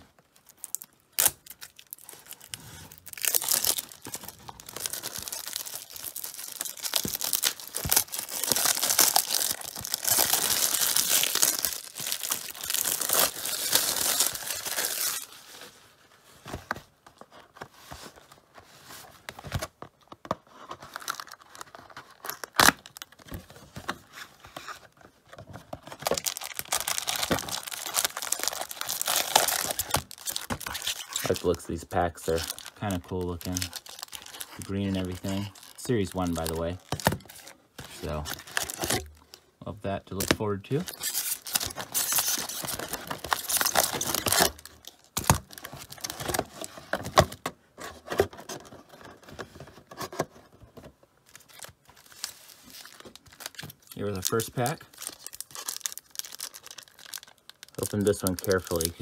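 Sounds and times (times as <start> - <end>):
plastic wrap tearing and crinkling: 0.2 - 15.6, 20.8 - 23.3, 25.8 - 39.3, 40.1 - 47.4, 51.2 - 59.0
foil packs rustling: 0.7 - 15.6, 25.8 - 39.3, 40.3 - 47.4, 51.3 - 59.0.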